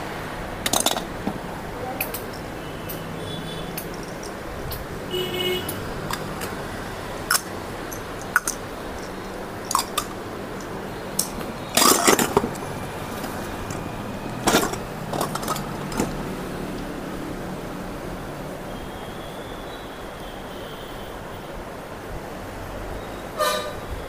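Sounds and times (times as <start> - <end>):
plastic cups clicking and clattering: 0.6 - 1.4, 3.7 - 4.9, 5.7 - 6.6, 7.2 - 16.4.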